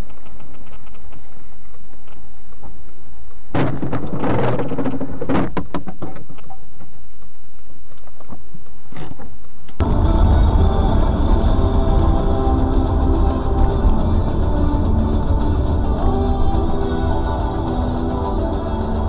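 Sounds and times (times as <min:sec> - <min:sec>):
car interior low rumble: 0:09.8 - 0:19.0.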